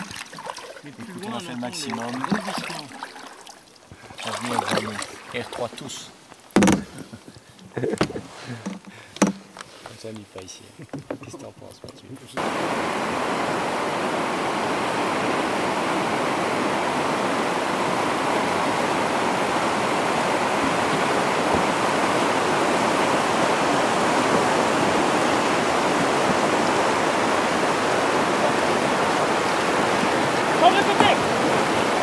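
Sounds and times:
river rapids rushing: 0:00.0 - 0:03.4, 0:12.4 - 0:32.0.

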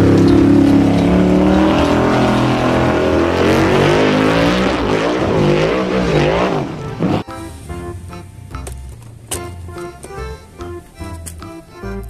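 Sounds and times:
buggy engine revving hard: 0:00.0 - 0:08.7.

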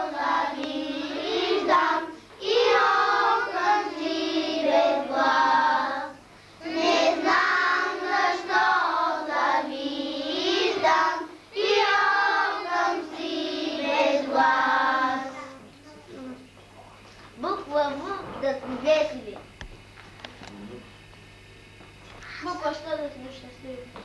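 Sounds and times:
children singing in unison: 0:00.0 - 0:15.4.

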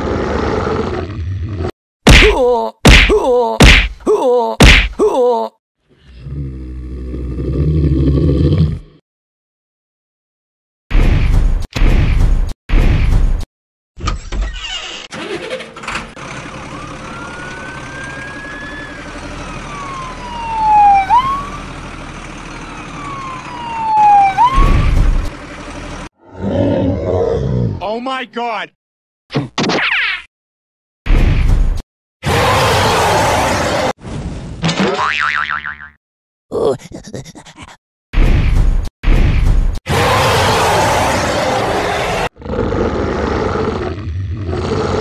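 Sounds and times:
siren wailing: 0:16.6 - 0:21.8, 0:22.6 - 0:25.0.

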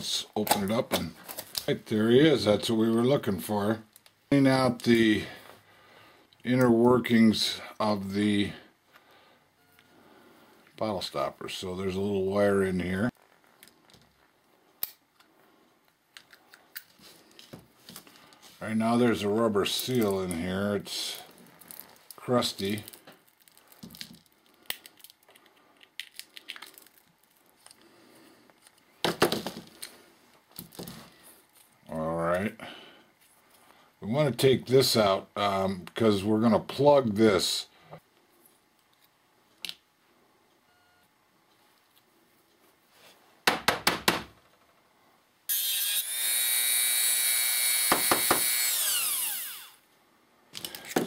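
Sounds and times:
rotary tool whine: 0:45.5 - 0:49.9.

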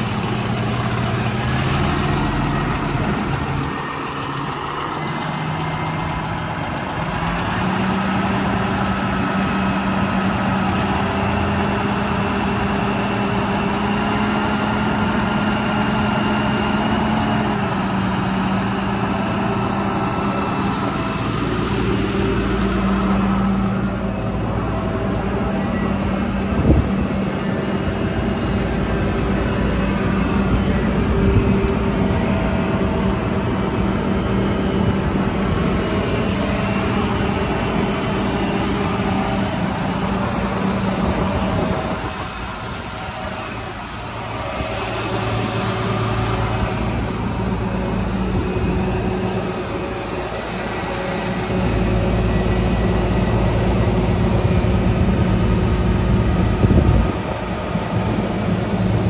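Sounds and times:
diesel engine and hydraulics hum: 0:00.0 - 0:59.0.

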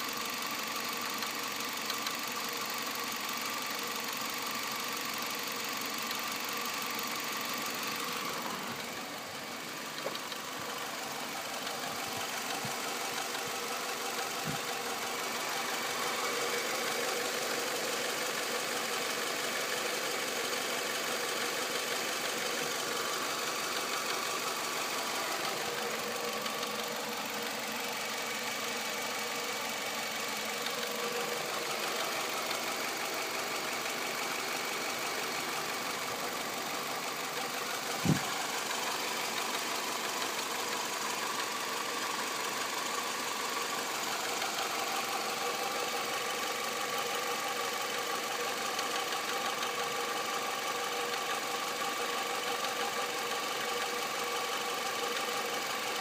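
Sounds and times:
car engine idling with knocking: 0:00.0 - 0:56.0
sharp thump: 0:38.0 - 0:38.3.

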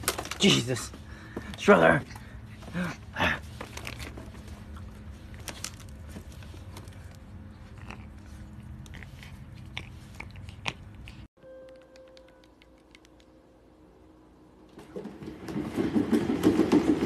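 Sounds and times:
raccoon chewing on hand: 0:03.4 - 0:11.3.

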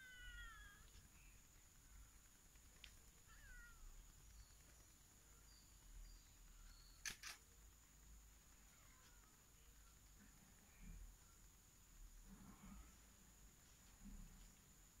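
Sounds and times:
short falling animal calls: 0:00.0 - 0:01.0
faint high whine: 0:00.0 - 0:15.0
sharp clicks: 0:06.9 - 0:07.6.

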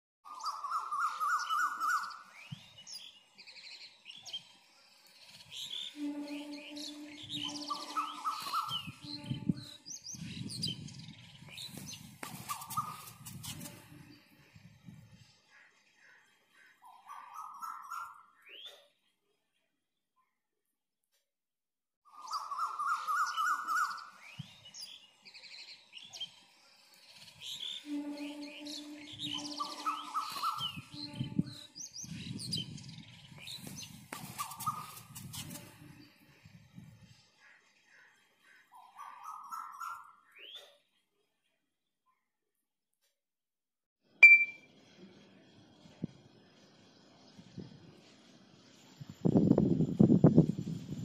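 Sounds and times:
wavering whistle-like bird call: 0:00.3 - 0:02.6, 0:05.6 - 0:09.8, 0:11.6 - 0:14.0, 0:22.2 - 0:24.5, 0:27.6 - 0:32.2, 0:33.5 - 0:35.6
high bird chirps: 0:00.3 - 0:14.5, 0:22.1 - 0:36.2, 0:44.2 - 0:44.7.

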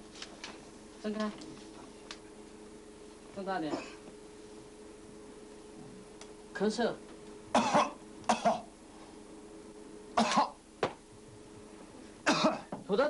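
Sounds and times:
man coughing hard: 0:03.7 - 0:04.0, 0:07.5 - 0:08.7, 0:10.2 - 0:10.6, 0:12.2 - 0:12.8.

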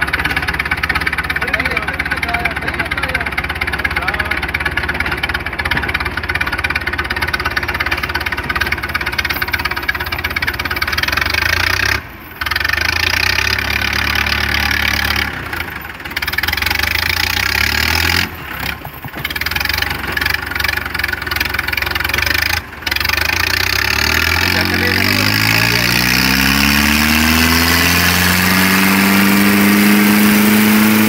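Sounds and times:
tractor engines running hard: 0:00.0 - 0:31.0.

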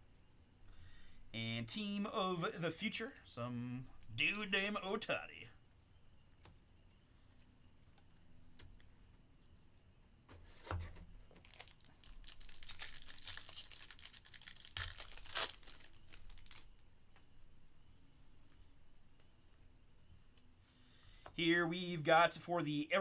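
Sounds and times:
foil wrapper tearing and crinkling: 0:11.4 - 0:16.8.

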